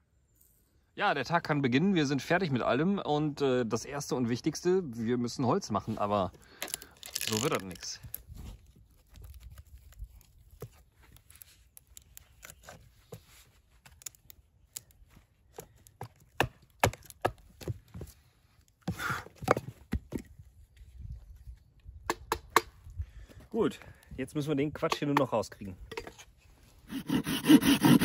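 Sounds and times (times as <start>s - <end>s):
axe cracking and knocking wood: 15.5s - 18.0s.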